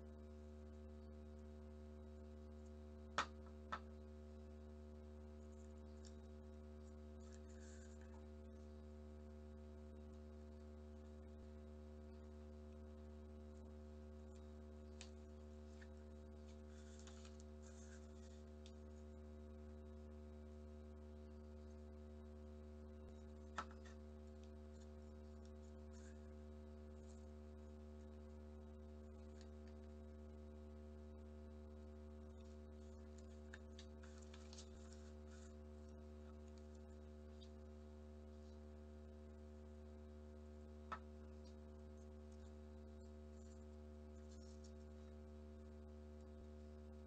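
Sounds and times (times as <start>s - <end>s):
low hum: 0.0s - 47.0s
paper being folded: 16.5s - 18.7s, 32.9s - 35.6s.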